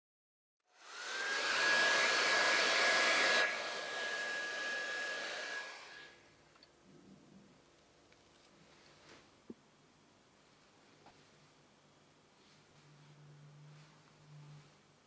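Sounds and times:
hair dryer running: 0.7s - 6.2s.

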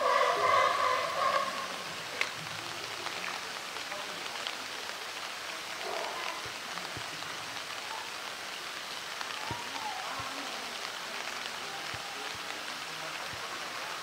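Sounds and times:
rain pattering on surfaces: 0.0s - 14.0s
water drips: 0.0s - 14.0s.

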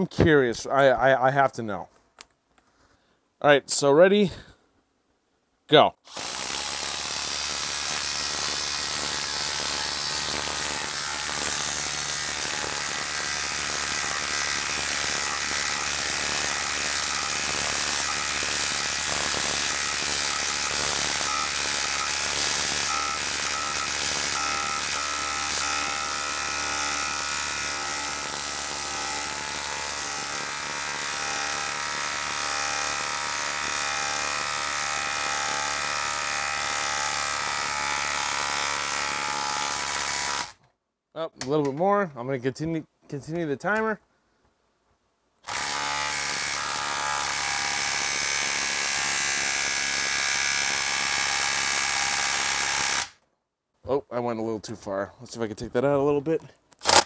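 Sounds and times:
impact driver hammering: 6.1s - 40.5s, 56.8s - 57.0s.

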